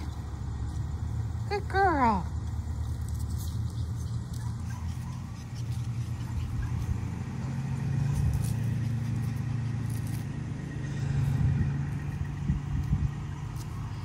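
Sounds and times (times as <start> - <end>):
low engine hum: 0.0 - 14.0.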